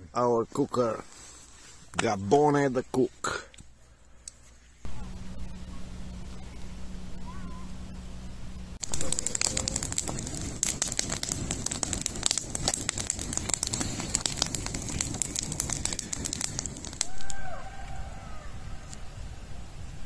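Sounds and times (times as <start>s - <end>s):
bonfire crackling with sharp pops: 8.8s - 18.1s
rising and falling pitched call: 17.0s - 19.0s.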